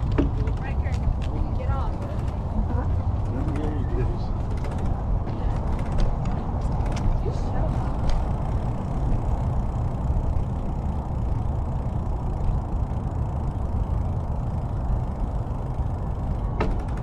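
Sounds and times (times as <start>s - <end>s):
bicycle tyres rolling on concrete: 0.0s - 17.0s.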